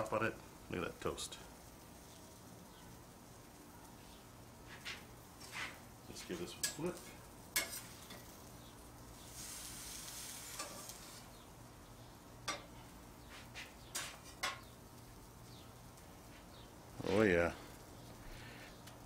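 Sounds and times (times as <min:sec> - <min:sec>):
bread and cheese sizzling: 0:00.0 - 0:19.0
metal spatula scraping grill grates: 0:04.6 - 0:11.4, 0:12.4 - 0:14.7.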